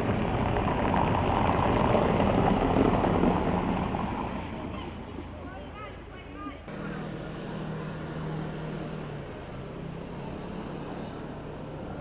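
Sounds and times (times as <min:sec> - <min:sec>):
car tyres rushing on stone paving: 0:00.0 - 0:05.6.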